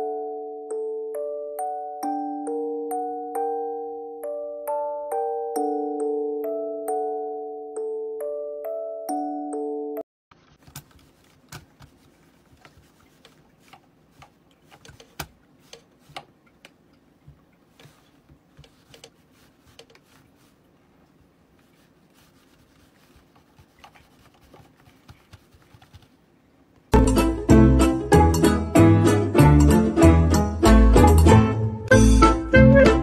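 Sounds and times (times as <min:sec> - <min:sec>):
plucked-string music: 0:27.0 - 0:33.0.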